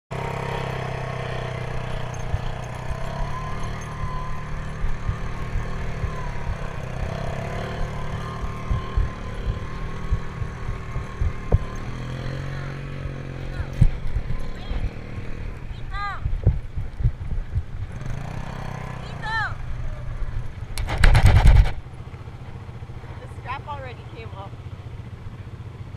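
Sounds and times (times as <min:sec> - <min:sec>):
quad engines running: 0:00.1 - 0:25.9
faint wavering whine: 0:01.6 - 0:15.7
wind thumps on microphone: 0:08.4 - 0:12.2, 0:13.6 - 0:14.9, 0:15.8 - 0:18.0, 0:20.7 - 0:21.8.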